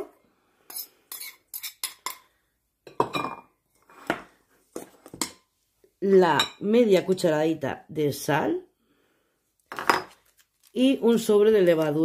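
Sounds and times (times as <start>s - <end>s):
ceramic bowl clinking on steel bowl: 2.9s - 3.5s.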